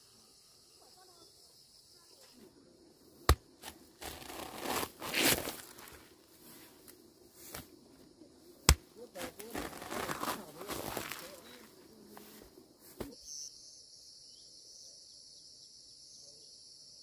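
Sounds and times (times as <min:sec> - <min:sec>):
rustling plants: 0:03.2 - 0:13.2.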